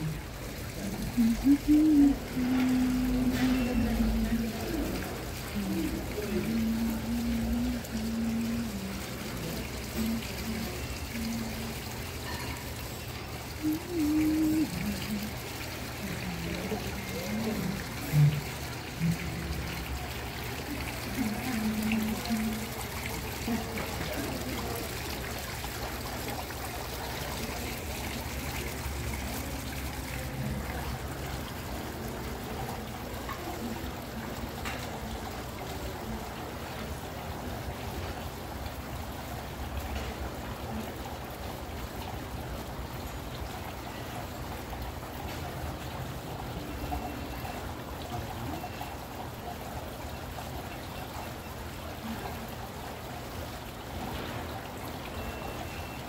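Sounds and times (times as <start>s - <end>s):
low steady hum: 0.0s - 41.2s.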